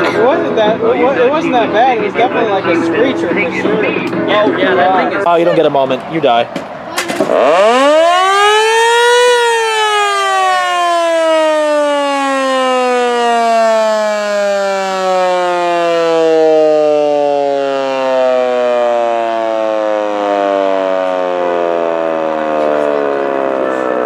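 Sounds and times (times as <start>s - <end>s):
warning siren wailing: 7.3s - 24.0s.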